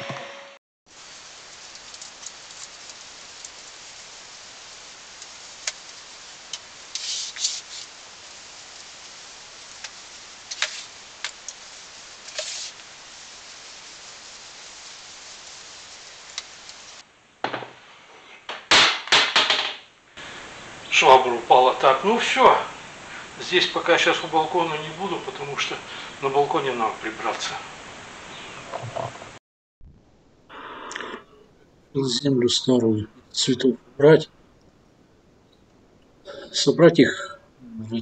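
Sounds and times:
mop swishing across floor: 0:01.1 - 0:17.0
mop scraping: 0:06.5 - 0:17.0
mop clattering as it falls: 0:17.4 - 0:17.8, 0:18.5 - 0:19.8.

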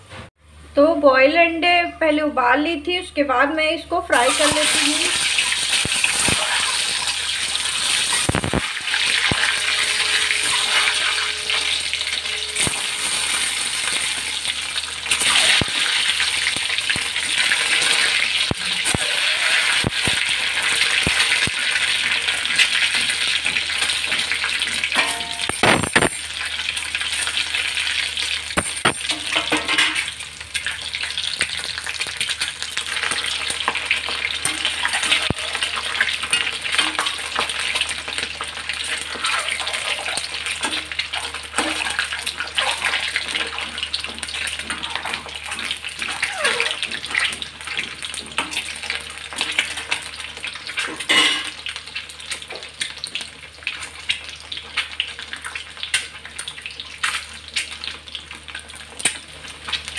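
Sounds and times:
eggs sizzling in hot oil: 0:04.0 - 0:59.9
metal spatula scraping: 0:06.1 - 0:15.6.

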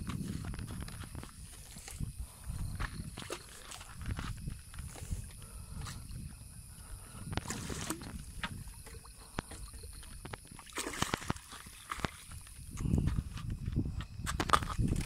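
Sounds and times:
fish splashing in water: 0:02.7 - 0:06.2, 0:07.0 - 0:12.7.

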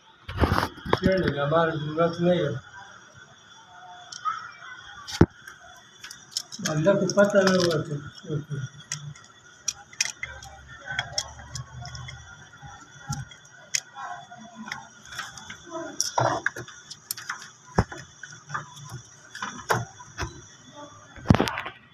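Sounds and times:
faint high whine: 0:00.0 - 0:21.9
hands clicking and tapping wires: 0:05.1 - 0:20.4.

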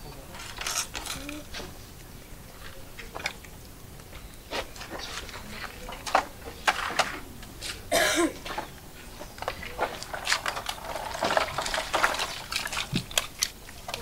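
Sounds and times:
person coughing: 0:07.9 - 0:08.4.

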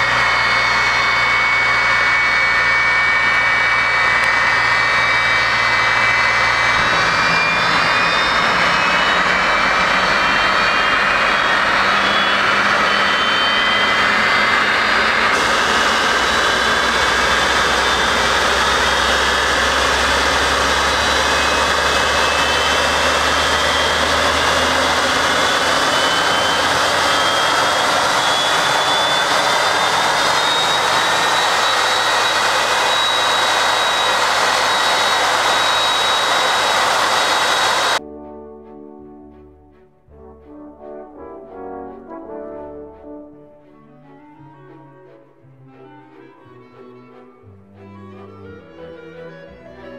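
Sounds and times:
jet engine spooling up: 0:00.0 - 0:38.0
rising whining tones: 0:00.0 - 0:38.0.

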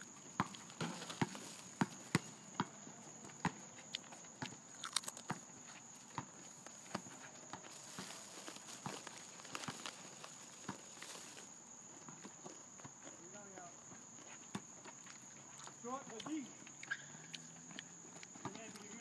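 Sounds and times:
basketball bouncing on asphalt: 0:00.2 - 0:04.6, 0:18.0 - 0:19.0
sneakers slapping pavement: 0:00.3 - 0:04.6, 0:18.2 - 0:19.0.

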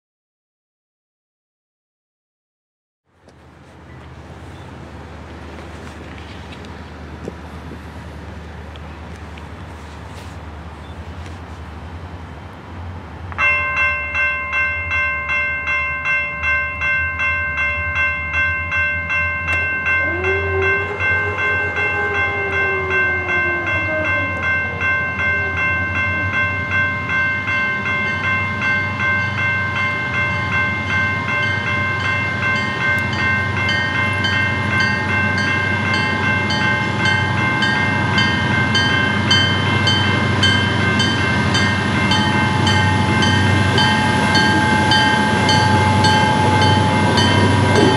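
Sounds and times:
diesel train rumble: 0:03.1 - 0:47.9
crossing bell ringing: 0:13.3 - 0:47.9
locomotive horn wavering blast: 0:19.9 - 0:26.6.

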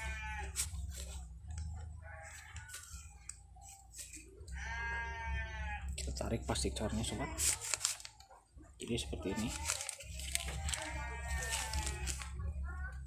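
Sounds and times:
livestock bleating: 0:00.0 - 0:00.8, 0:04.5 - 0:06.0, 0:10.4 - 0:12.4
steady low hum: 0:00.0 - 0:13.0.

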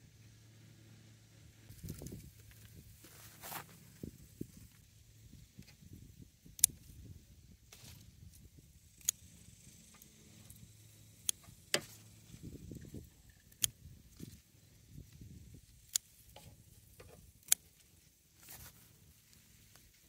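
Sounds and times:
leaves rustling: 0:01.7 - 0:04.8, 0:17.6 - 0:20.0
scissors snipping vines: 0:06.5 - 0:06.9, 0:15.8 - 0:17.8.

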